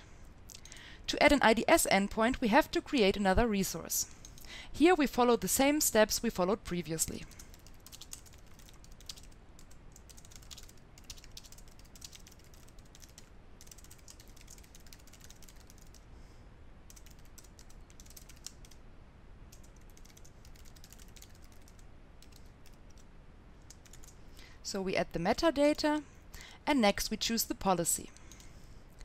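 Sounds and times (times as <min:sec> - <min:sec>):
typing on keyboard: 0:07.2 - 0:16.0, 0:16.9 - 0:18.8, 0:19.5 - 0:23.0, 0:23.7 - 0:24.2.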